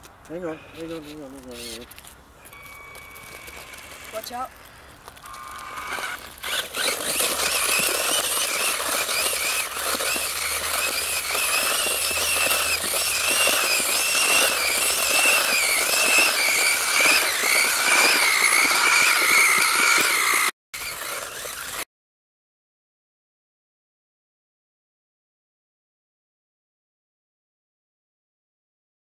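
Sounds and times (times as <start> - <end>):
toy car wheels squealing on concrete: 0.3 - 21.9.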